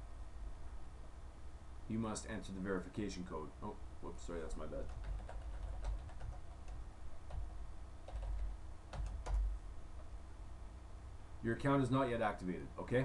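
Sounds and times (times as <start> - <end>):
keyboard keys clicking: 4.9 - 9.5.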